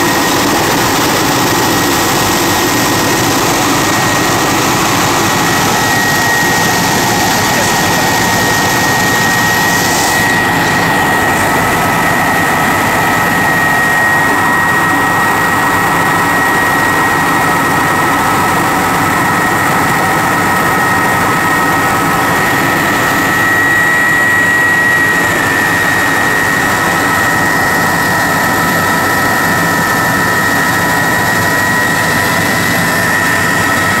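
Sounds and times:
rotor and air rush: 0.0 - 16.4
helicopter engine whine: 0.0 - 34.0.

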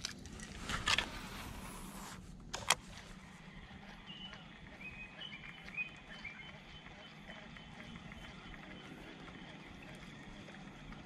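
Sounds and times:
reel spool whirring: 2.9 - 11.0.

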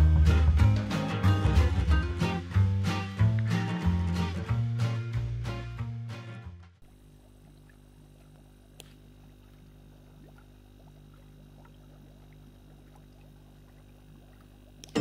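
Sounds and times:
background music: 0.0 - 6.8
small water plops: 6.8 - 15.0
steady low hum: 6.8 - 15.0.

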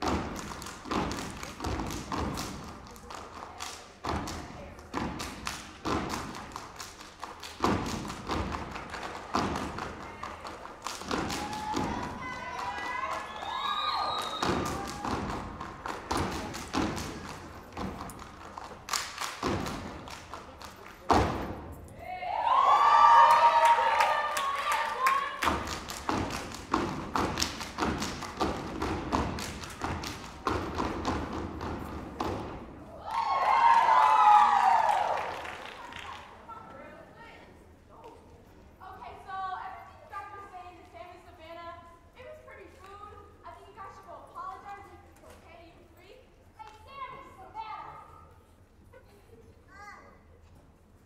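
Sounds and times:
hand claps and slaps: 0.0 - 13.4, 14.1 - 21.5, 23.9 - 32.5.

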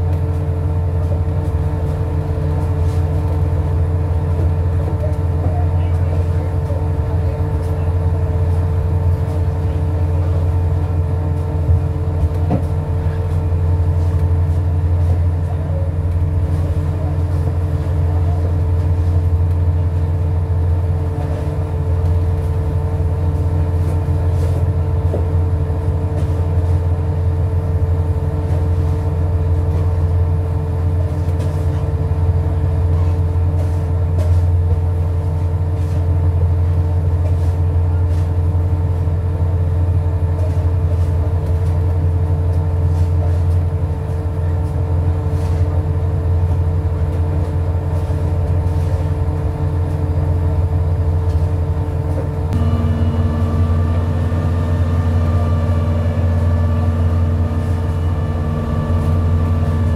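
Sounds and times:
boat engine droning: 0.0 - 59.9
steady hum: 45.2 - 59.9.

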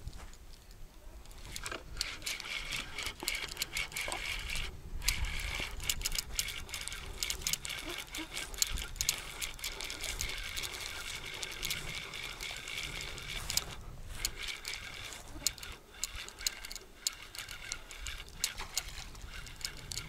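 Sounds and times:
reel ticking clicks: 0.1 - 20.0
fishing reel gears whirring: 1.2 - 20.0.

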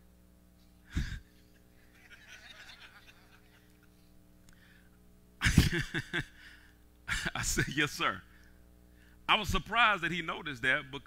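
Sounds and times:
man speaking into a microphone: 9.3 - 11.0.

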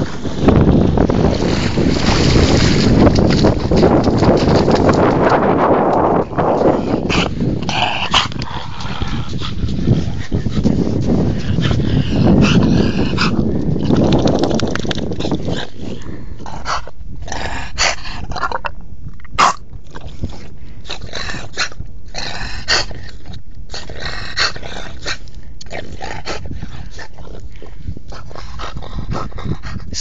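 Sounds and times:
dog growling: 6.4 - 14.1.

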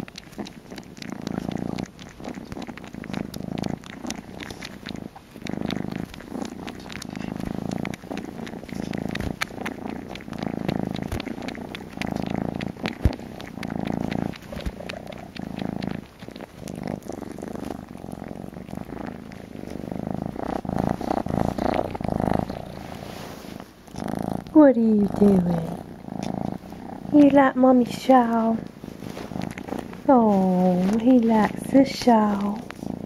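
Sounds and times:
small clicks and rustles: 0.0 - 24.6, 28.3 - 33.0
kitten purring: 0.0 - 33.0.

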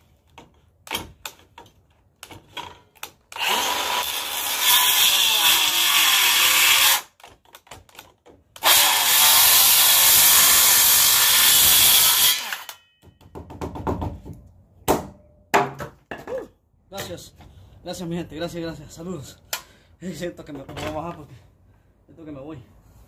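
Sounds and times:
circular saw cutting wood: 3.4 - 7.1, 8.6 - 12.8.

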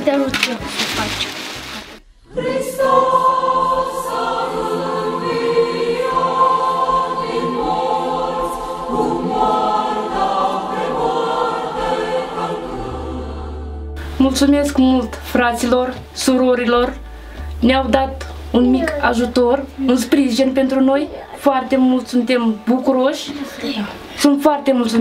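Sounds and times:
choir singing: 2.2 - 15.7.

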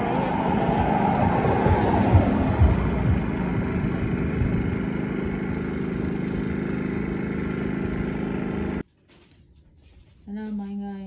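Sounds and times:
engine idling: 0.0 - 8.8.

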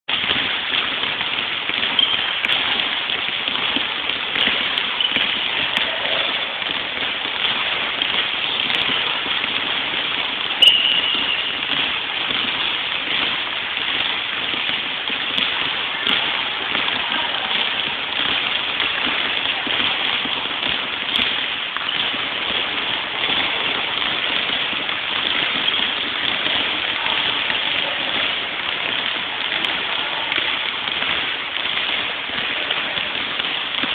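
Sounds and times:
basketballs bouncing on gym floor: 0.1 - 33.9
shoe squeak: 1.9 - 2.4, 5.0 - 5.4, 10.6 - 11.8.

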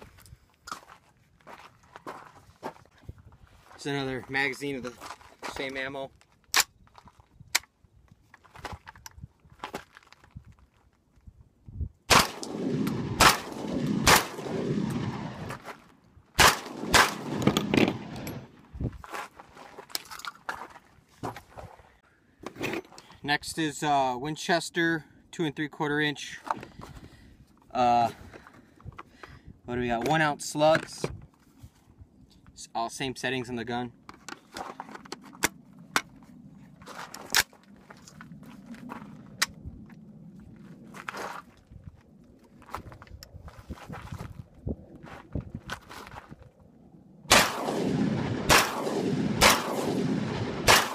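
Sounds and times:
shotgun shots echoing: 12.1 - 15.5, 16.4 - 18.5, 47.3 - 50.9
shotgun metallic clicks and clacks: 16.4 - 18.4.

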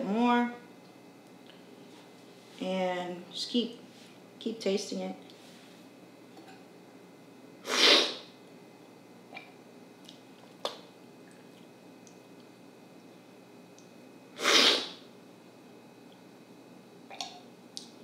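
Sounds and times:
loud coffee slurps: 7.6 - 8.2, 14.4 - 15.0.

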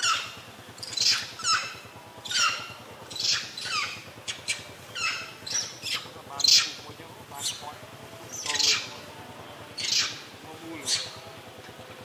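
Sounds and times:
monkeys screaming: 0.0 - 6.8, 7.4 - 7.7, 8.3 - 9.0, 9.8 - 11.3.

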